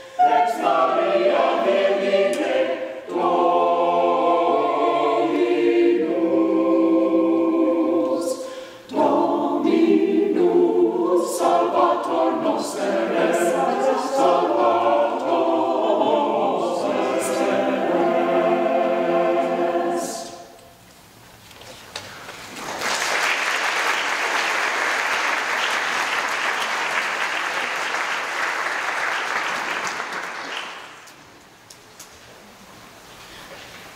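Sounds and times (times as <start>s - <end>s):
mixed choir singing: 0.0s - 20.6s.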